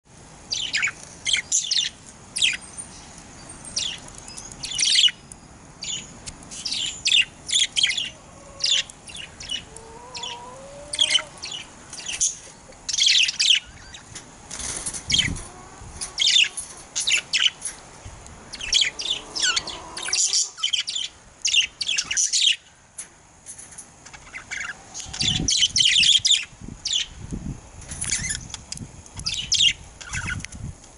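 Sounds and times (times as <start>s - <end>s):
budgerigars chattering: 6.6s - 14.1s, 15.1s - 17.6s, 18.5s - 22.6s, 24.2s - 27.1s.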